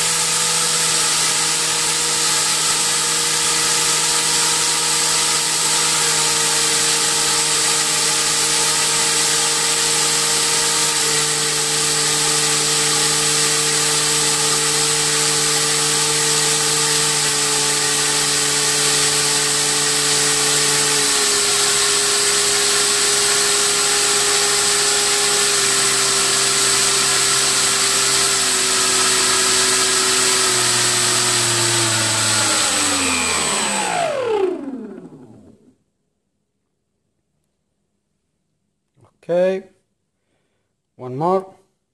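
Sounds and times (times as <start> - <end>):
electric motor propeller whine: 28.6 - 35.7.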